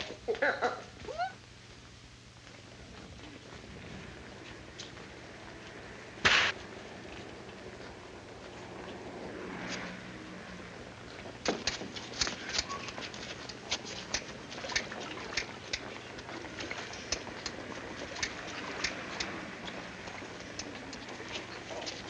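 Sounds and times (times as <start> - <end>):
film soundtrack hiss: 0.0 - 22.0
sharp crackling clicks: 11.4 - 16.3, 16.9 - 19.4.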